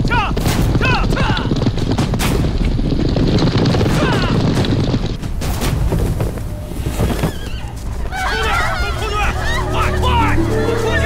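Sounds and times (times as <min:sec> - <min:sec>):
riders shouting: 0:00.0 - 0:01.7, 0:03.8 - 0:04.5, 0:08.1 - 0:11.0
horses galloping: 0:00.0 - 0:11.0.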